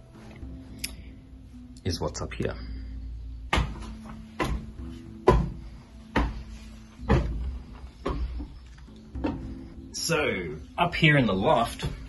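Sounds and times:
footsteps on wooden stairs: 0:03.5 - 0:09.6.

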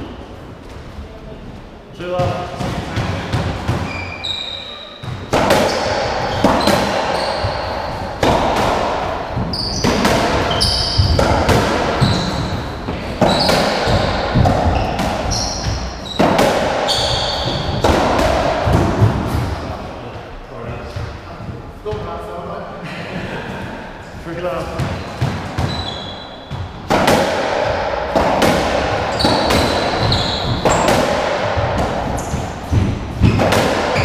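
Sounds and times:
ball smacking rackets and walls: 0:02.1 - 0:21.2, 0:24.6 - 0:34.0
trainers squeaking on floor: 0:03.8 - 0:08.2, 0:09.4 - 0:17.8, 0:24.9 - 0:26.6, 0:29.1 - 0:31.1, 0:33.2 - 0:34.0.

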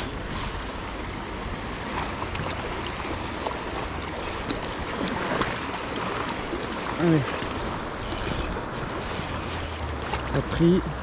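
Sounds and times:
faint clicks: 0:07.9 - 0:11.0.

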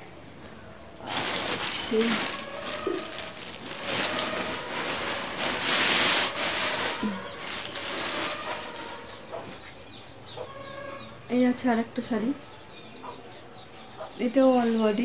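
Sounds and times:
shopping bags rustling: 0:01.0 - 0:09.3.

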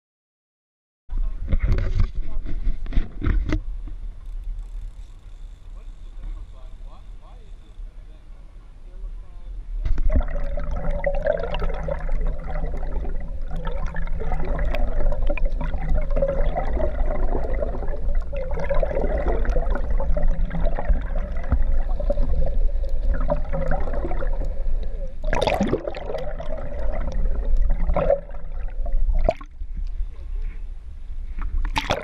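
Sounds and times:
low steady hum: 0:01.1 - 0:32.0
water rushing and gurgling: 0:09.9 - 0:29.6, 0:31.5 - 0:32.0.

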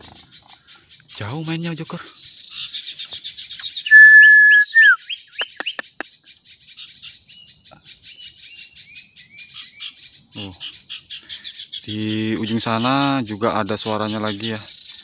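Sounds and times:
insects trilling: 0:00.0 - 0:15.0
bird whistling and chirping: 0:02.5 - 0:06.0
sharp bird clicks: 0:02.5 - 0:06.4.

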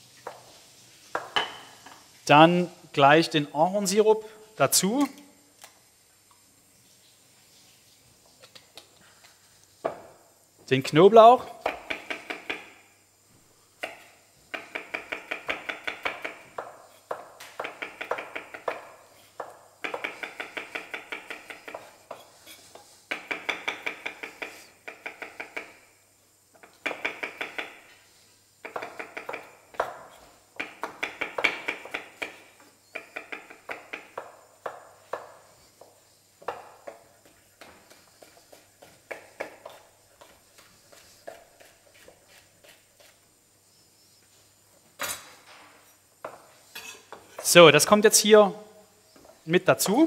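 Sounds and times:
knife chopping on wooden board: 0:13.8 - 0:22.3, 0:28.6 - 0:32.4, 0:33.0 - 0:43.2.

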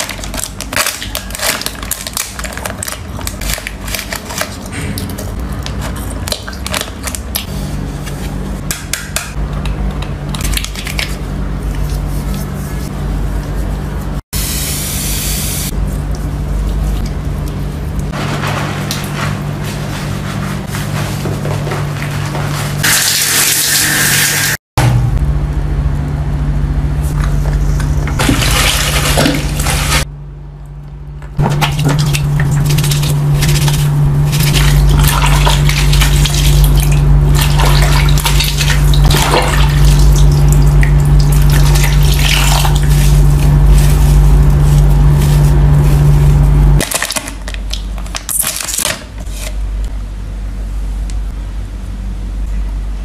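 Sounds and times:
steady low hum: 0:00.0 - 0:22.9, 0:24.8 - 0:48.3, 0:49.0 - 0:53.0
water sloshing in basin: 0:28.2 - 0:30.1, 0:31.4 - 0:44.5.

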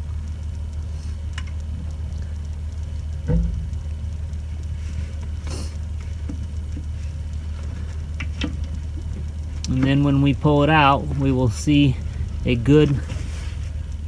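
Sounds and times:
low engine rumble: 0:00.0 - 0:14.0
faint knocks: 0:03.3 - 0:03.8
low thump: 0:03.3 - 0:03.8.

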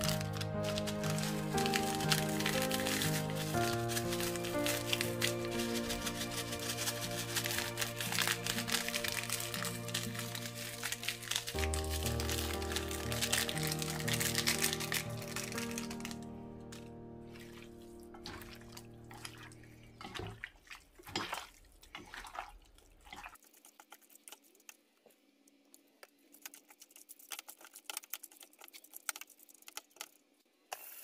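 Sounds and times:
wet squelching of kneaded meat: 0:00.0 - 0:16.1, 0:17.3 - 0:24.9
background music: 0:00.0 - 0:20.2.

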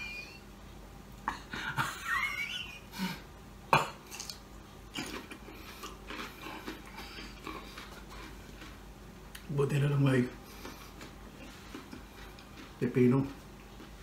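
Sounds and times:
cucumber bite crack: 0:03.8 - 0:05.4
crunching chews: 0:03.9 - 0:14.0.

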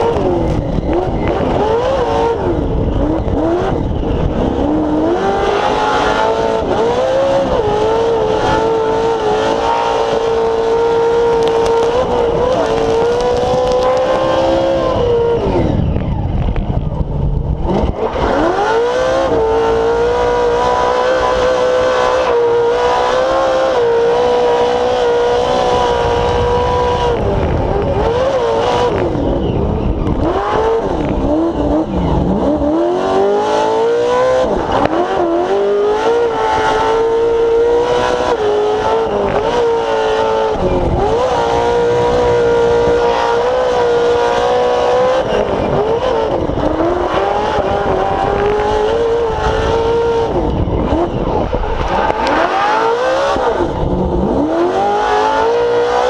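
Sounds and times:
race truck engine revving: 0:00.0 - 0:56.0.

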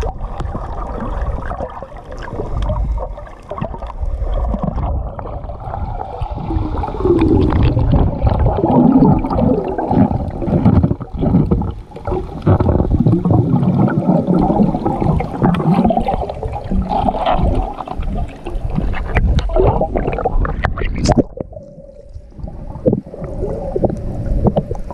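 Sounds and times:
muffled underwater sloshing: 0:00.0 - 0:24.9
underwater thuds: 0:06.7 - 0:21.6.

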